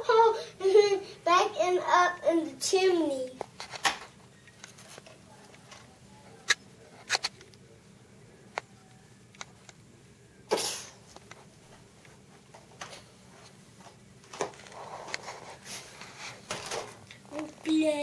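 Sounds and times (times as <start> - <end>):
short loud hiss: 10.5 - 11.0.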